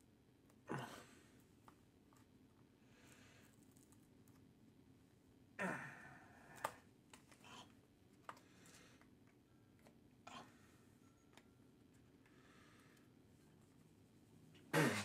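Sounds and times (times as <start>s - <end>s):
man sighing: 5.6s - 6.6s.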